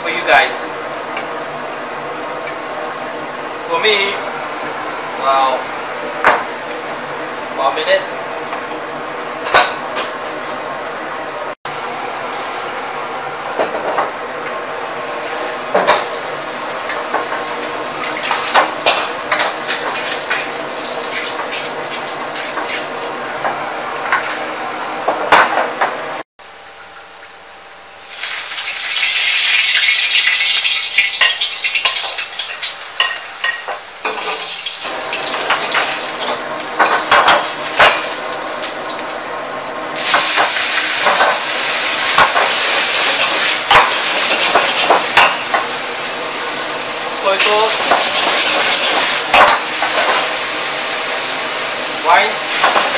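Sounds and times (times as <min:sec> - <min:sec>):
food sizzling in a wok: 0:13.6 - 0:23.2, 0:28.0 - 0:52.9.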